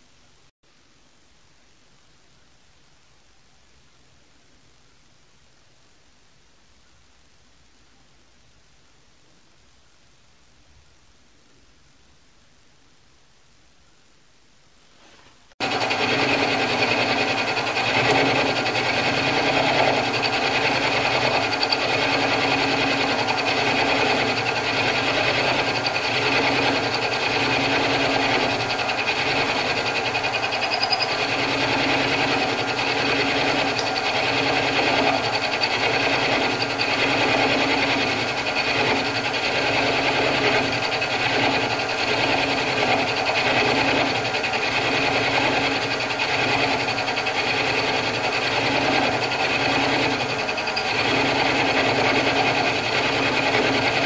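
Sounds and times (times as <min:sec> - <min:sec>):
cutter milling metal: 0:15.6 - 0:54.0
lathe motor whine: 0:15.6 - 0:54.0.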